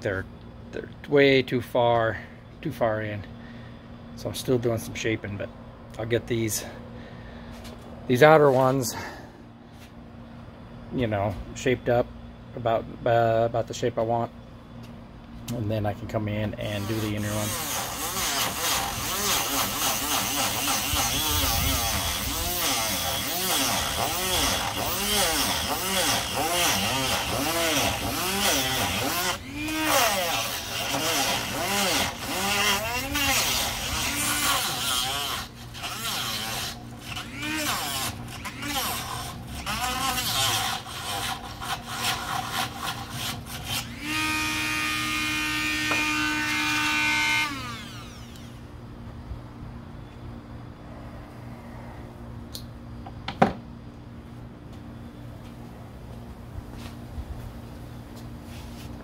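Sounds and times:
power sander scraping filler: 0:16.6 - 0:48.5
rotary tool motor whine: 0:16.6 - 0:48.6.

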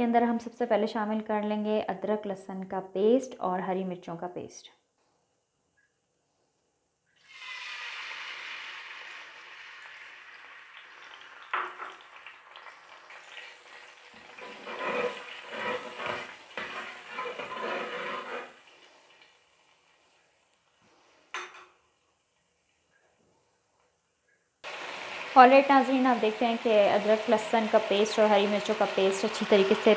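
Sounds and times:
paste sizzling in hot oil: 0:07.2 - 0:21.0, 0:24.6 - 0:29.9
metal spatula scraping wok: 0:14.2 - 0:18.7.

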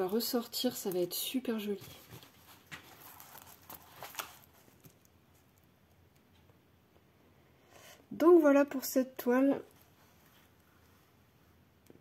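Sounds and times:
plastic film rustling and crinkling: 0:00.0 - 0:05.6.

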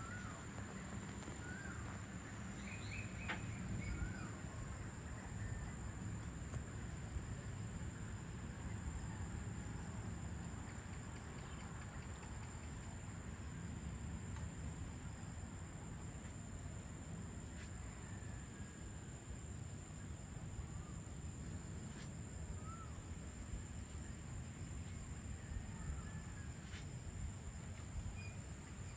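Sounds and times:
faint short chirps: 0:28.1 - 0:28.9.

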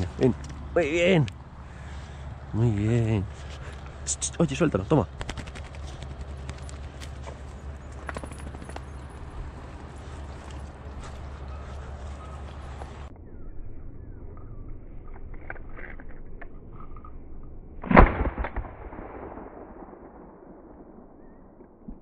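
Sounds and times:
shotgun shot echoing: 0:17.8 - 0:21.4.

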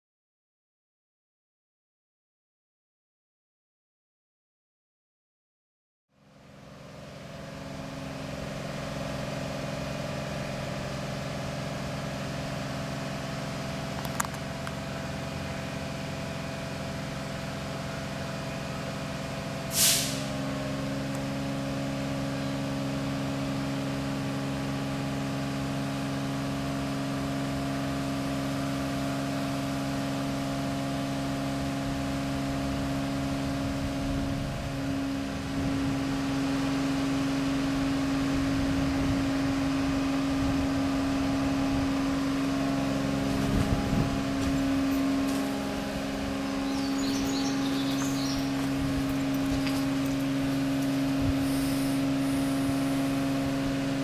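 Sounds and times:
short sharp hiss: 0:19.7 - 0:20.3, 0:51.4 - 0:53.0
mechanical drone with held tones: 0:38.1 - 0:54.0.

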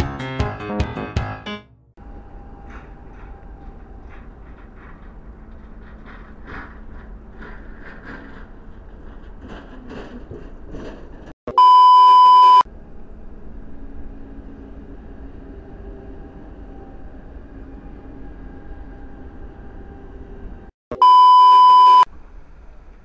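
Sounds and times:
test-tone beep: 0:11.5 - 0:12.6, 0:20.9 - 0:22.1.

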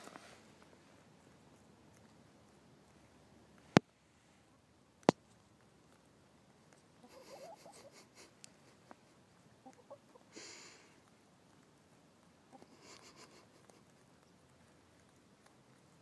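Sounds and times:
scratchy rustle: 0:00.0 - 0:02.2
hens clucking: 0:06.8 - 0:11.2, 0:12.4 - 0:14.4.

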